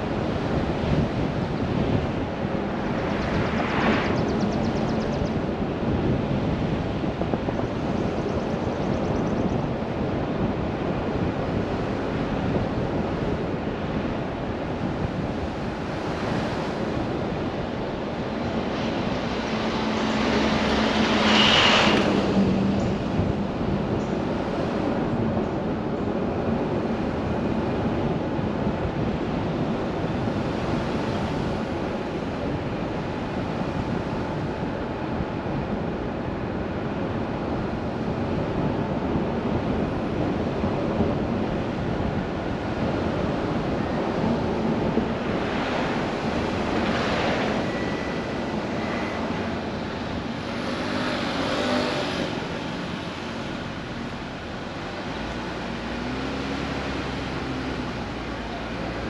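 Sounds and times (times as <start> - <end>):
tyre and road noise: 0.0 - 59.0
vehicles passing: 0.0 - 59.0.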